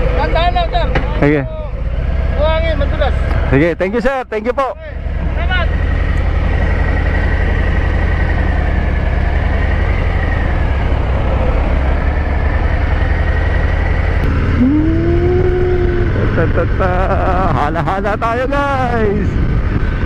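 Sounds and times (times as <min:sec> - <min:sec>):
motorcycle engine running: 0:00.0 - 0:20.0
short rising tone: 0:14.2 - 0:16.2
wind noise: 0:14.2 - 0:20.0.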